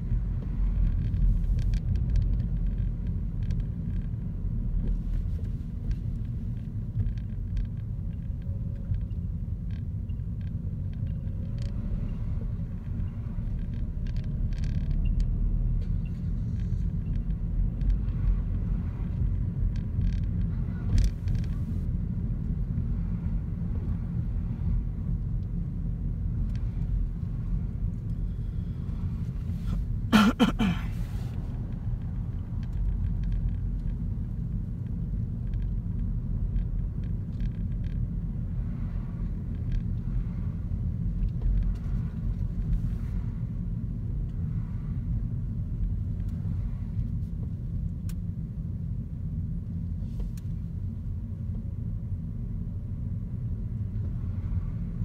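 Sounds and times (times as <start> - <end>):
car engine and tyres rumbling: 0.0 - 55.0.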